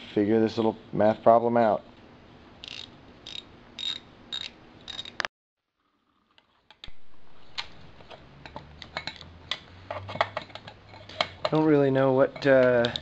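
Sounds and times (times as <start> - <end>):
ratchet wrench clicking: 2.6 - 5.2.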